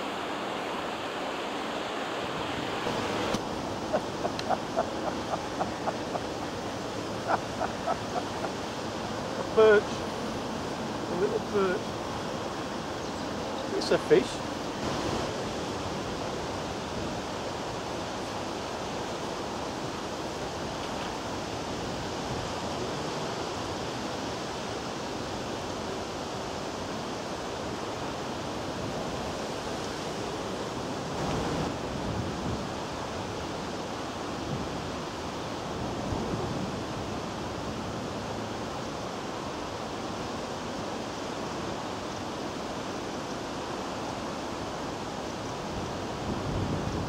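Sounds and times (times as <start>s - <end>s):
wind buffeting microphone: 45.7s - 47.0s.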